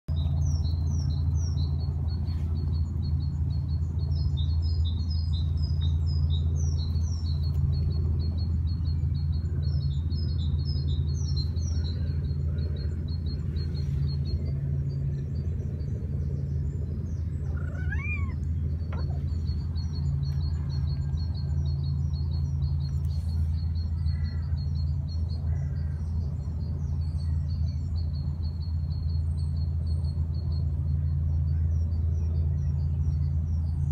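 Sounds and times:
small birds chirping: 0:00.1 - 0:33.9
steady low rumble: 0:00.1 - 0:33.9
rising-and-falling bird call: 0:17.4 - 0:19.5.

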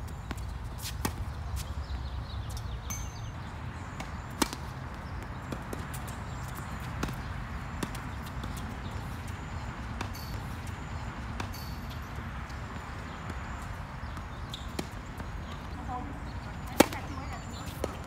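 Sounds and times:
tennis ball hits and bounces: 0:03.9 - 0:15.7, 0:16.6 - 0:18.0.

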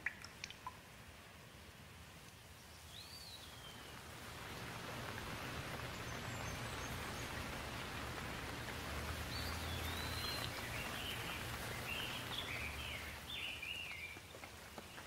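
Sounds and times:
steady rain: 0:00.0 - 0:15.0
bird chirping: 0:02.6 - 0:04.0, 0:09.3 - 0:15.0.

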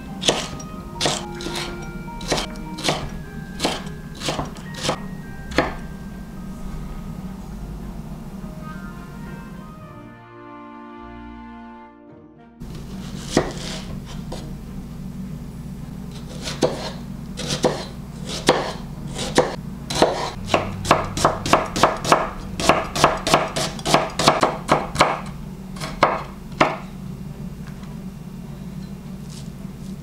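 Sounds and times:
knife chopping onion on board: 0:00.2 - 0:05.8, 0:13.0 - 0:14.5, 0:16.1 - 0:26.8.

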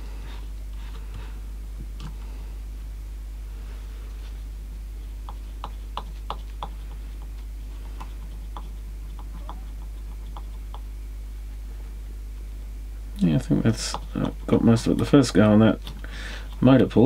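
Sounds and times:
constant low hum: 0:00.0 - 0:17.0.

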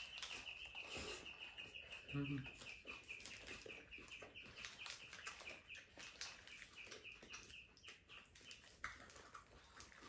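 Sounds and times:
bird chirping: 0:00.0 - 0:08.8
eating clicks and rustles: 0:00.0 - 0:10.0.

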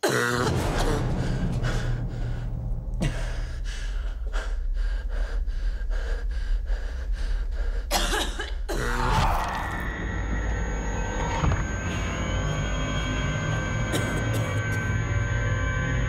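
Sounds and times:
person coughing: 0:00.0 - 0:01.1, 0:03.0 - 0:03.6, 0:07.9 - 0:09.0, 0:13.9 - 0:15.0
low steady drone: 0:00.1 - 0:16.0.

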